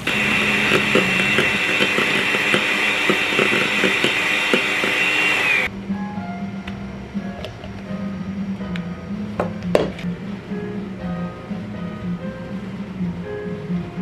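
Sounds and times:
electric mixer motor whine: 0.0 - 5.7.

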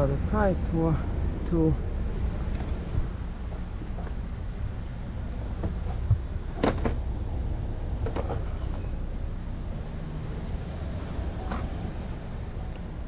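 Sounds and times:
low steady rumble: 0.0 - 13.0
sharp clicks and knocks: 5.6 - 7.0.

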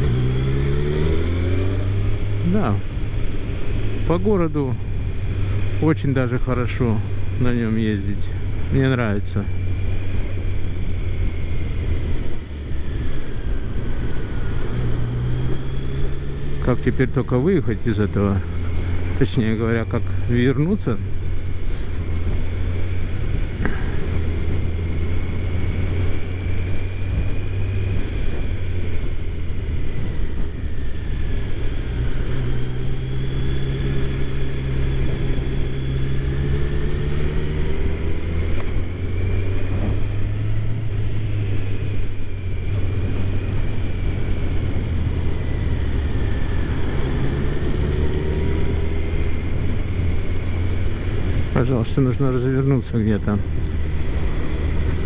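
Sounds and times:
motorcycle engine running: 0.0 - 55.0.

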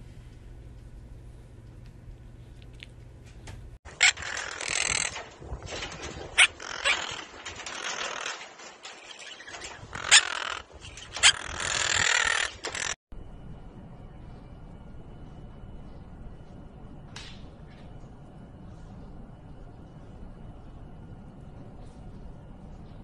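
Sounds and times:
parrot squawking: 9.9 - 13.0.

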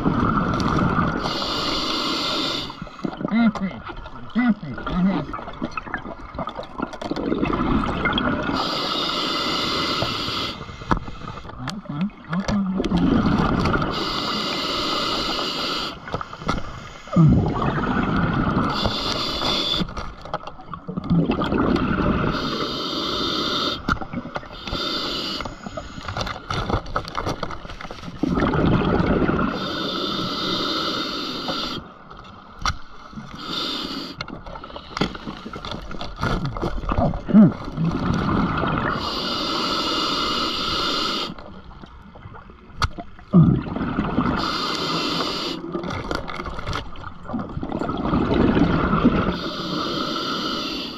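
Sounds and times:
gurgling exhaled bubbles: 0.0 - 10.6, 11.5 - 15.9, 16.6 - 20.0, 20.6 - 26.0, 28.2 - 31.9, 36.2 - 41.4, 43.0 - 50.9
hissing regulator inhale: 1.2 - 3.1, 8.5 - 11.5, 13.9 - 17.3, 18.6 - 20.0, 22.3 - 23.9, 24.5 - 26.3, 29.5 - 32.0, 33.3 - 35.7, 38.9 - 41.4, 44.4 - 45.7, 49.3 - 50.9.

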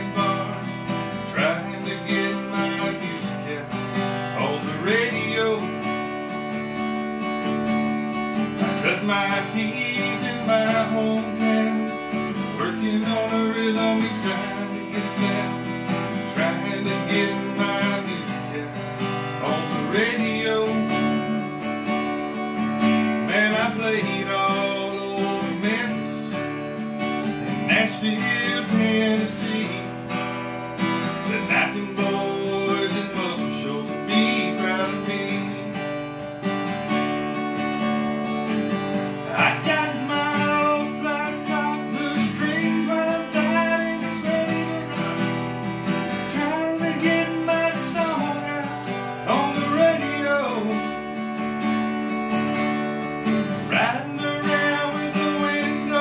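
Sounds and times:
acoustic guitar strumming: 0.0 - 56.0.

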